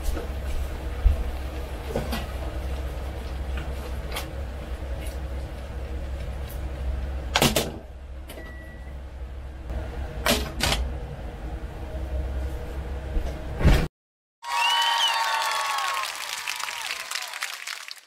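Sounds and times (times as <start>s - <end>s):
steady low hum: 0.0s - 13.9s.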